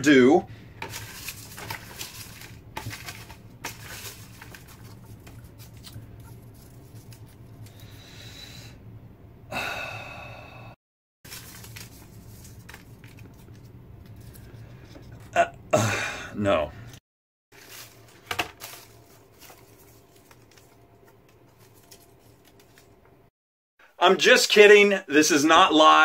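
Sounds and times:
paper slips rustling: 0:00.7 - 0:07.8, 0:11.3 - 0:14.6, 0:17.5 - 0:23.0.

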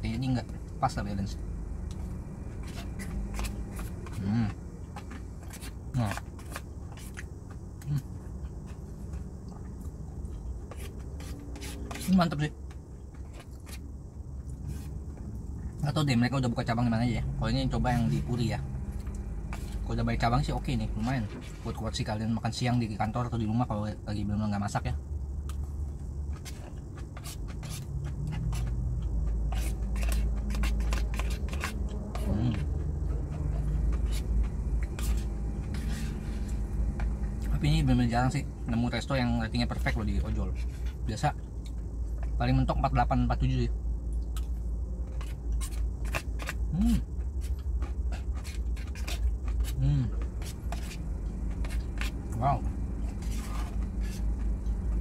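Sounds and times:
steady low rumble: 0:00.0 - 0:11.5, 0:12.3 - 0:55.0
chewing: 0:25.4 - 0:37.6, 0:44.1 - 0:55.0
close-up chewing and mouth clicks: 0:44.0 - 0:55.0.

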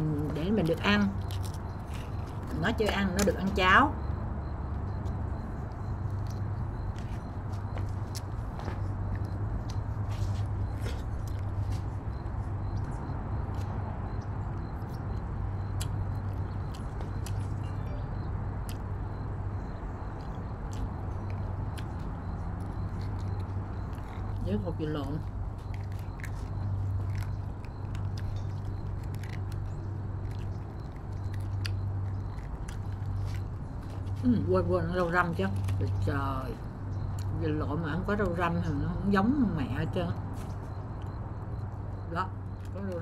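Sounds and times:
eating sounds: 0:00.0 - 0:04.1, 0:18.6 - 0:41.7.

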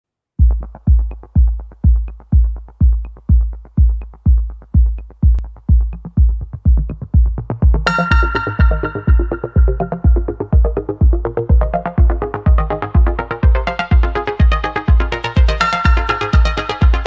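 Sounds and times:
electronic music with bass kick: 0:00.4 - 0:17.0
bright synth line: 0:07.8 - 0:10.9.

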